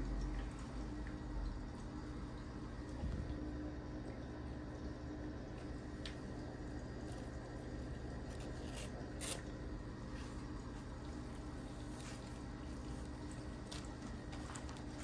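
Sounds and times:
steady low hum: 0:00.0 - 0:15.0
paper sheet crinkling: 0:11.2 - 0:15.0.

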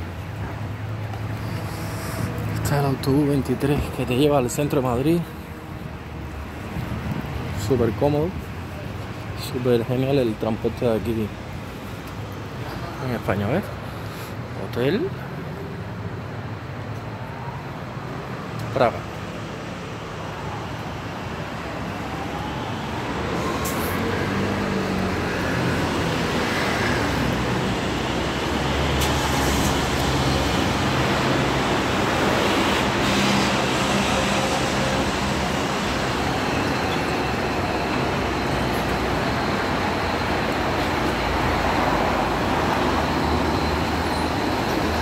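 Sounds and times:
road traffic passing: 0:00.0 - 0:45.0.

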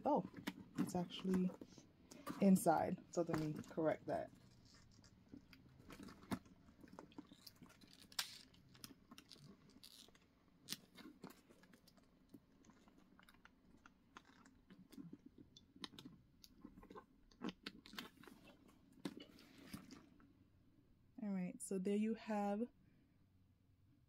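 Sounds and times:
leather handbag rustling: 0:00.1 - 0:13.3.

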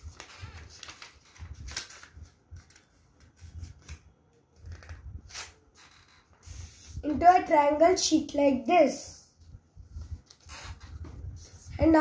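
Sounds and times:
paper rustling and crinkling: 0:00.0 - 0:06.3.

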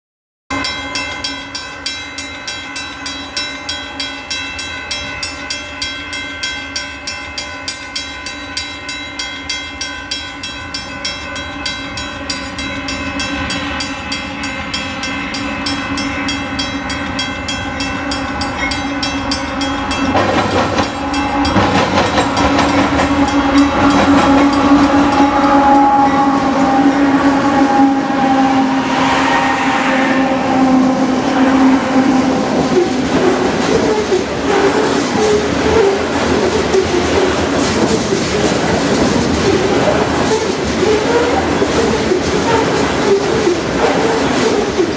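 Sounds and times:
steady ringing bell strikes: 0:00.5 - 0:26.4
diesel locomotives approaching: 0:00.5 - 0:44.9.

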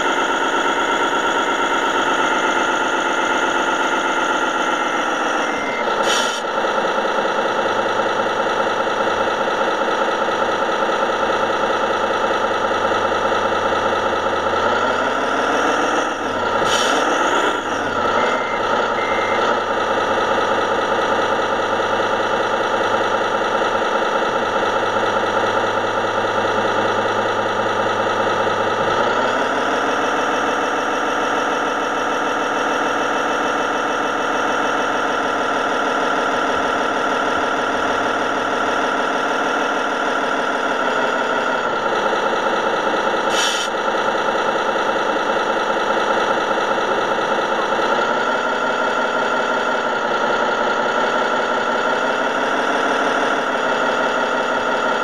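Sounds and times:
electronic diesel engine sound: 0:00.0 - 0:55.0.

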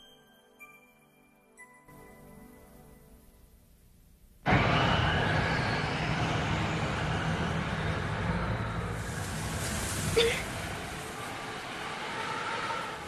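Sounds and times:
rumbling outdoor noise: 0:04.4 - 0:13.0.

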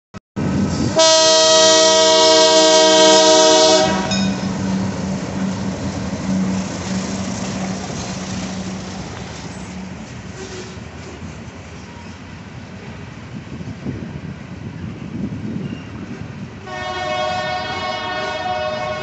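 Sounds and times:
diesel engine drone: 0:00.4 - 0:10.4
freight train rumbling past: 0:00.4 - 0:19.0
locomotive horn blast: 0:00.9 - 0:05.7, 0:16.6 - 0:19.0.

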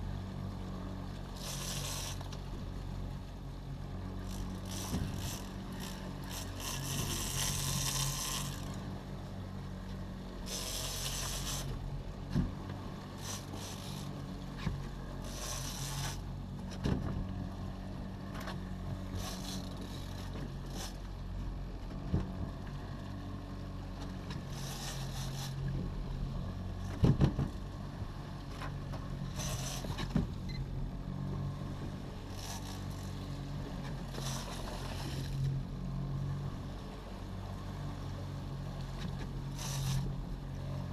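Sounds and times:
outboard motor running: 0:00.0 - 0:40.9
waves splashing against hull: 0:00.7 - 0:23.0, 0:23.8 - 0:40.9
knocks on boat: 0:12.3 - 0:12.7, 0:16.8 - 0:17.3, 0:26.9 - 0:27.6, 0:30.0 - 0:30.4.

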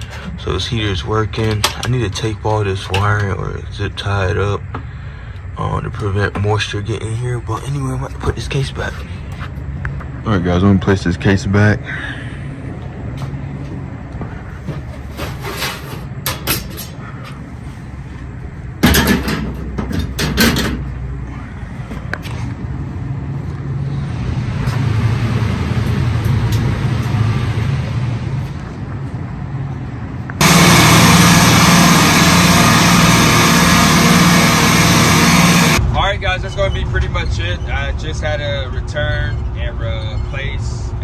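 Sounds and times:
freezer case low hum: 0:30.4 - 0:35.8
refrigeration compressor din: 0:30.4 - 0:35.8.

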